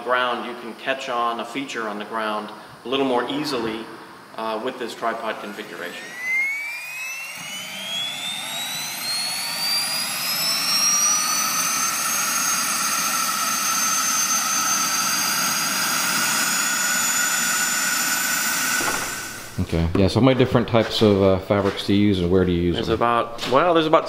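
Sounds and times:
turbine engine whine: 0:05.4 - 0:19.9.

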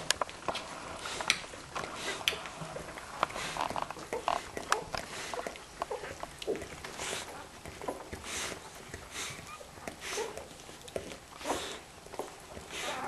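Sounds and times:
dog snuffling and licking: 0:00.0 - 0:13.0
puppies grunting and squeaking: 0:00.0 - 0:13.0.

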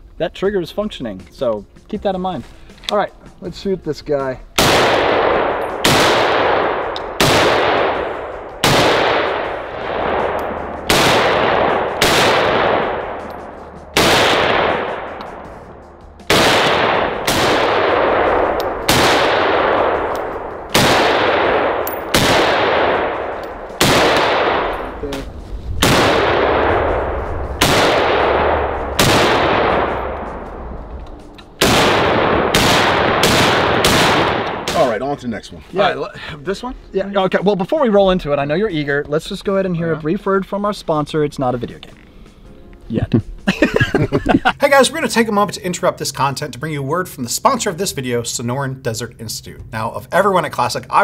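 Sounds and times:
rifle shots with echo: 0:04.6 - 0:25.0, 0:25.8 - 0:30.6, 0:31.4 - 0:35.0.

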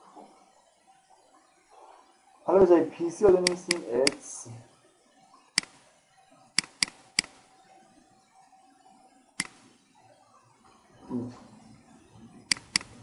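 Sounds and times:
faint background hiss: 0:00.0 - 0:13.0
computer mouse clicks: 0:03.4 - 0:04.2, 0:05.6 - 0:05.8, 0:06.6 - 0:07.4, 0:09.4 - 0:09.7, 0:12.5 - 0:13.0.

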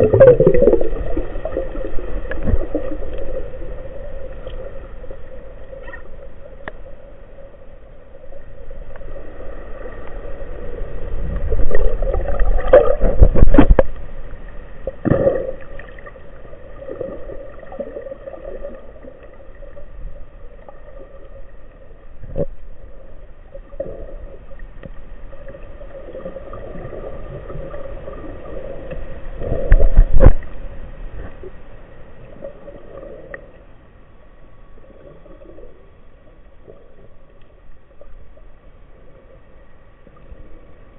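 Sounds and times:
muffled underwater water movement: 0:00.0 - 0:40.9.

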